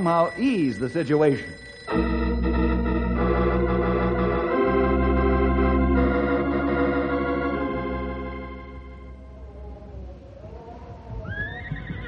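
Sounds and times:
organ playing sustained chords: 0:00.0 - 0:09.6.

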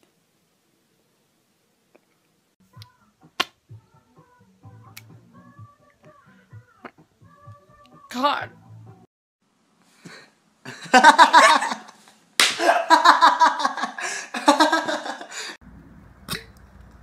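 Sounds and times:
laughter: 0:10.6 - 0:15.5.

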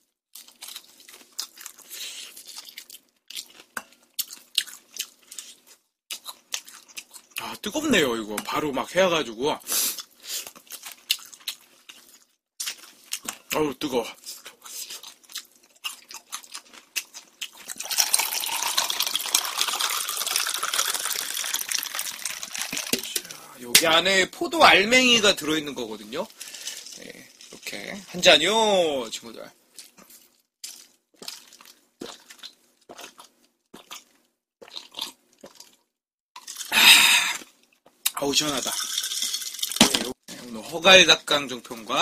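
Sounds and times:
person gulping juice: 0:17.7 - 0:23.5, 0:30.6 - 0:40.0
drink pouring into glass of ice: 0:17.8 - 0:23.3, 0:38.5 - 0:40.1.

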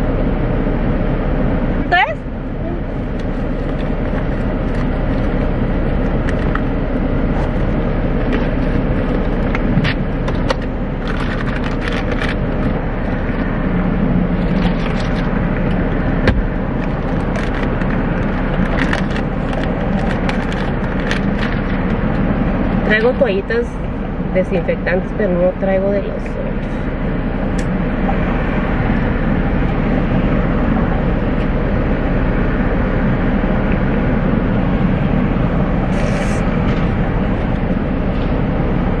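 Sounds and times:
car idling heard from inside: 0:00.0 - 0:39.0.

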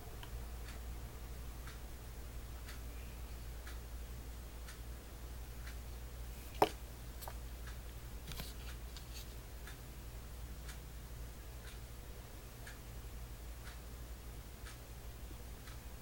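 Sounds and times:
clock ticking: 0:11.6 - 0:11.9.

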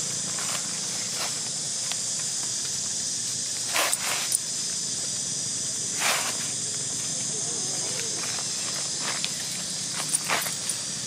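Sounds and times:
high-pitched insect drone: 0:00.0 - 0:11.0
feet scuffing on dry leaves: 0:00.3 - 0:01.6, 0:08.0 - 0:10.9.

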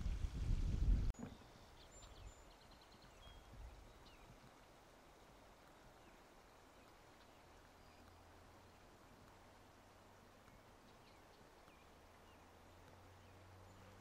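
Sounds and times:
low rumble on microphone: 0:00.0 - 0:01.4.

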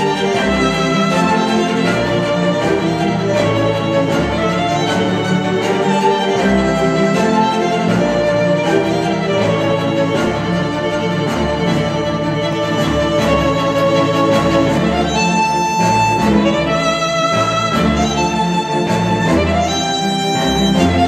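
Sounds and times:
string music with violin lead: 0:00.0 - 0:21.0.

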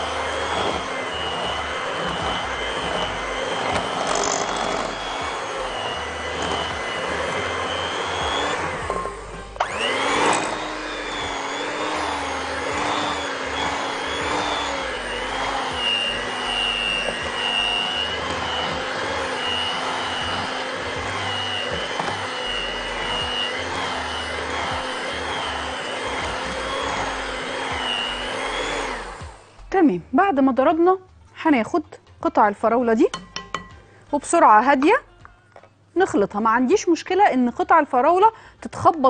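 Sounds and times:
electric hand mixer running: 0:00.0 - 0:29.6.

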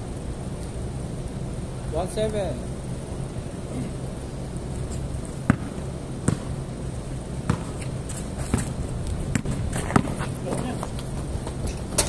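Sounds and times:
steady low hum: 0:00.0 - 0:12.0
basketball bouncing on concrete: 0:05.4 - 0:06.6, 0:07.4 - 0:12.0.

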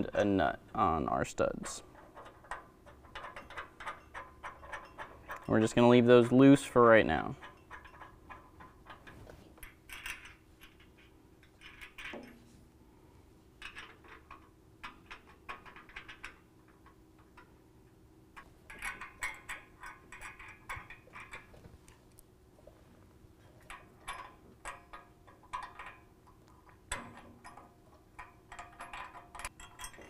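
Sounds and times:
metallic clicks of nuts spun on: 0:01.6 - 0:12.3, 0:23.6 - 0:30.0.

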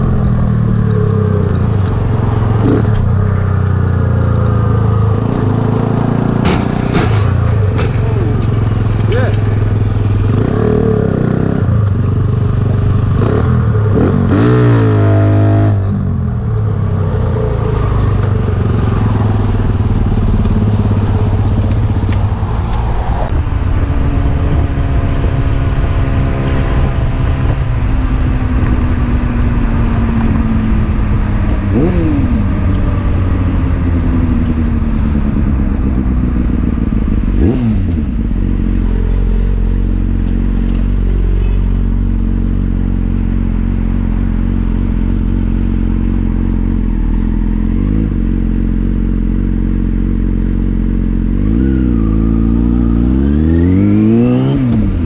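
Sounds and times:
motorcycle engine revving: 0:00.0 - 0:55.0
road noise: 0:00.0 - 0:55.0
wind noise: 0:17.8 - 0:41.2.

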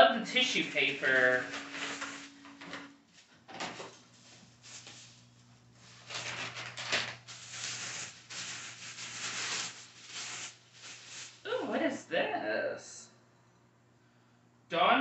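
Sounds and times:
tissue paper rustling and crinkling: 0:00.3 - 0:02.4, 0:03.8 - 0:11.9.

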